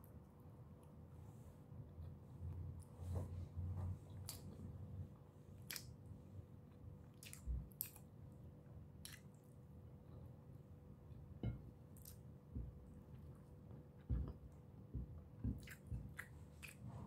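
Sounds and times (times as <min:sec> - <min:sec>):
person chewing food: 0:05.5 - 0:08.2, 0:09.0 - 0:10.3, 0:11.1 - 0:17.0.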